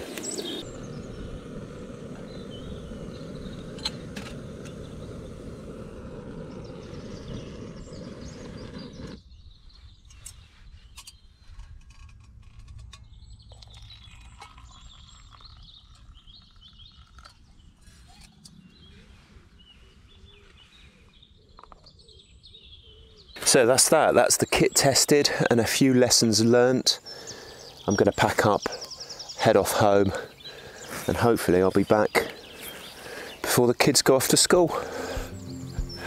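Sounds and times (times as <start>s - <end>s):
camping stove roaring: 0.0s - 9.2s, 34.5s - 36.0s
faint birdsong: 0.0s - 36.0s
water pouring into a mug: 13.6s - 17.3s.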